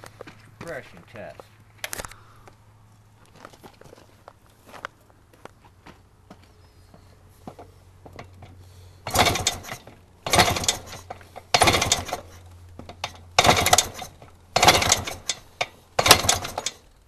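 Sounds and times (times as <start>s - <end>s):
motorcycle kickstarter kicks: 7.4s - 17.0s.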